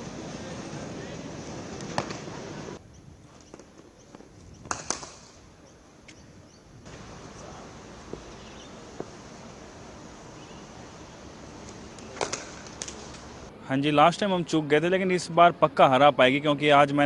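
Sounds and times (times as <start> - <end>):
background noise: 0.0 - 17.0
cricket bats striking balls: 1.8 - 2.6, 3.4 - 5.4, 8.0 - 9.2, 11.6 - 13.4.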